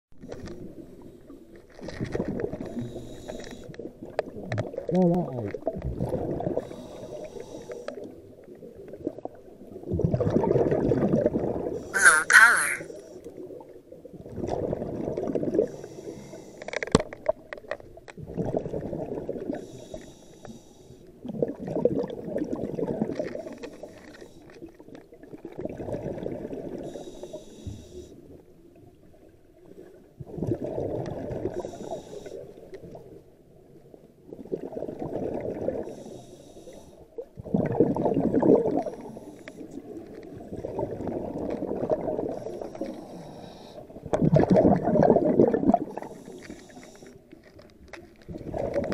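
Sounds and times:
regulator inhale hiss: 0:02.7 - 0:03.7, 0:06.6 - 0:08.0, 0:15.6 - 0:16.7, 0:19.6 - 0:21.1, 0:26.8 - 0:28.2, 0:31.5 - 0:32.5, 0:35.9 - 0:37.0, 0:38.8 - 0:39.8, 0:42.4 - 0:43.8, 0:46.0 - 0:47.2
exhaled bubbles rumbling: 0:03.8 - 0:07.2, 0:08.0 - 0:11.8, 0:13.4 - 0:15.8, 0:17.3 - 0:19.6, 0:21.2 - 0:23.6, 0:24.9 - 0:26.9, 0:28.7 - 0:31.7, 0:32.8 - 0:35.9, 0:37.2 - 0:43.1, 0:43.9 - 0:46.3, 0:47.2 - 0:48.9.

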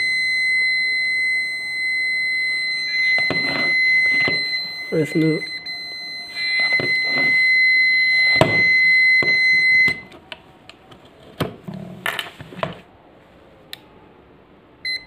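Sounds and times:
meter beeping: 0:00.0 - 0:10.2.

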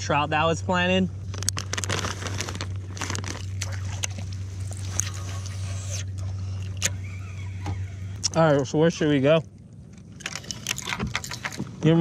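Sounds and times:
steady low hum: 0:00.0 - 0:12.0
rustling: 0:01.3 - 0:05.3.

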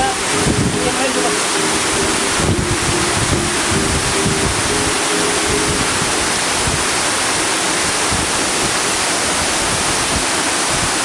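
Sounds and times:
small waterfall splashing: 0:00.0 - 0:11.0.

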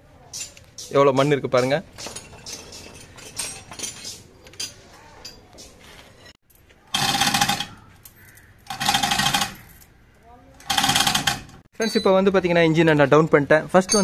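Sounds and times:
metal parts clinking: 0:00.3 - 0:06.4, 0:13.8 - 0:14.0
power tool whirring rattle: 0:08.6 - 0:09.7.

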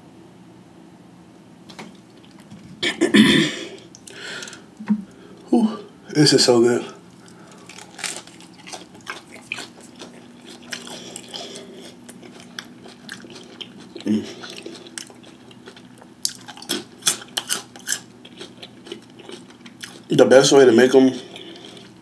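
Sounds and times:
person crunching food: 0:01.9 - 0:02.5, 0:03.7 - 0:05.2, 0:07.0 - 0:20.1, 0:20.8 - 0:22.0.

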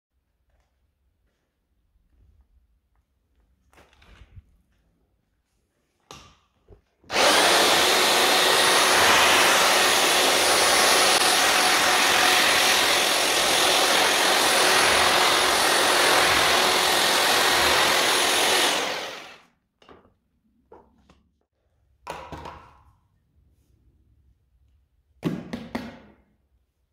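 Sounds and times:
hammer drill mixing adhesive: 0:07.0 - 0:19.5.

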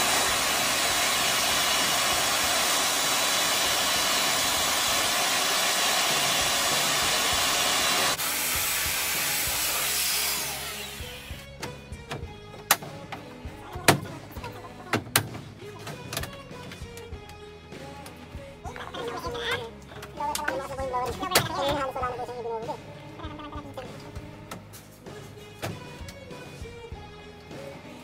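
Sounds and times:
hair dryer blowing: 0:00.0 - 0:11.4.

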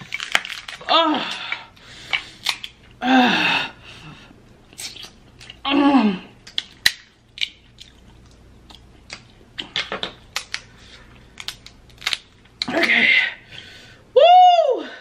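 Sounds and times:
crab shells cracking: 0:00.0 - 0:01.5, 0:02.1 - 0:02.8, 0:06.4 - 0:10.7, 0:11.3 - 0:12.9
person moaning: 0:00.8 - 0:01.7, 0:03.0 - 0:03.8, 0:05.6 - 0:06.4, 0:12.6 - 0:13.4.

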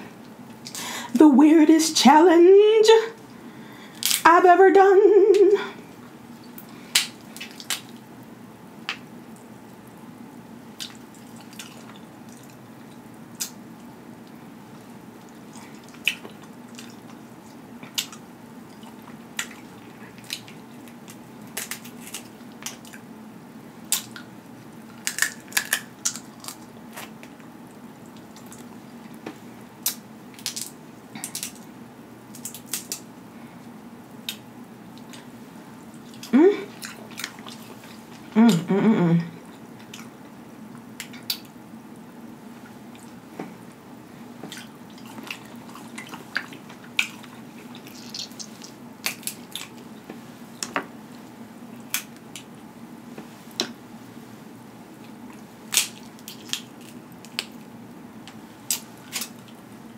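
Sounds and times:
crab shells cracking: 0:03.9 - 0:04.3, 0:06.6 - 0:08.0, 0:19.4 - 0:23.0, 0:23.9 - 0:27.5, 0:29.8 - 0:31.7, 0:32.3 - 0:33.1, 0:45.0 - 0:49.9, 0:55.7 - 0:57.7.

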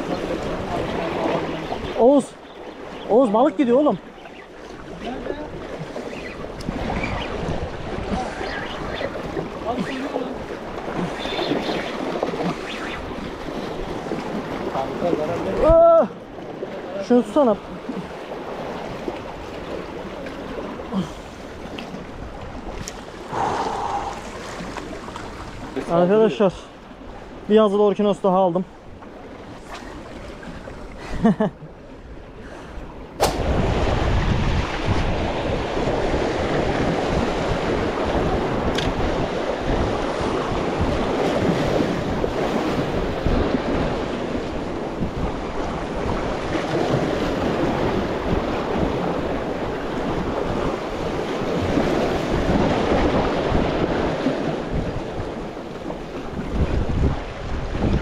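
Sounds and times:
wind buffeting microphone: 0:00.0 - 0:17.0, 0:32.8 - 0:58.0
sharp click: 0:33.2 - 0:33.4
waves breaking on concrete: 0:33.2 - 0:44.2.

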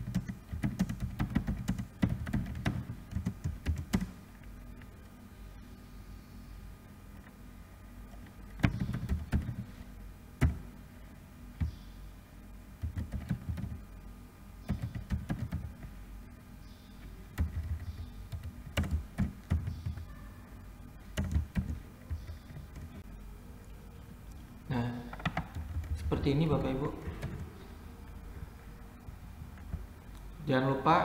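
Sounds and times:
keyboard keystrokes: 0:00.0 - 0:04.2, 0:08.2 - 0:09.7, 0:12.8 - 0:13.8, 0:14.6 - 0:15.9, 0:17.3 - 0:20.1, 0:21.1 - 0:23.0.

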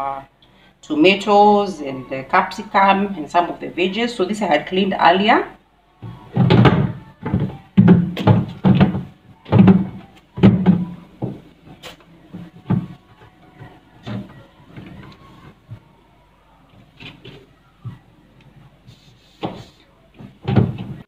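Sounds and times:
plastic drawer knocking and rattling: 0:06.4 - 0:11.4, 0:20.3 - 0:21.0.

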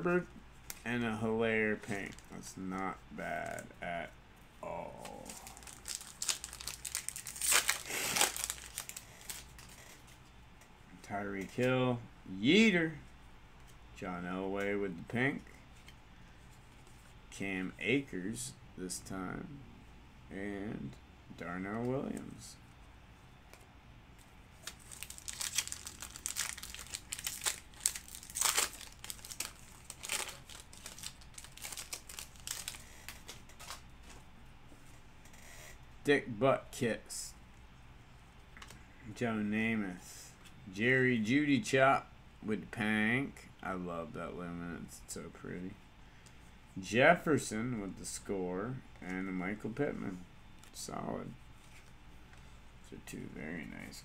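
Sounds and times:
card pack wrapper tearing and crinkling: 0:04.9 - 0:09.9, 0:24.6 - 0:33.8.

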